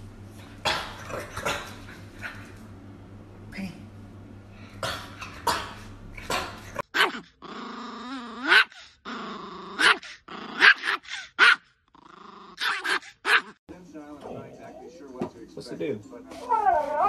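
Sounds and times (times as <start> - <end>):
dog growling: 5.0 - 13.5
dog yapping: 6.2 - 7.2, 9.8 - 10.0, 10.6 - 11.6, 12.6 - 13.6.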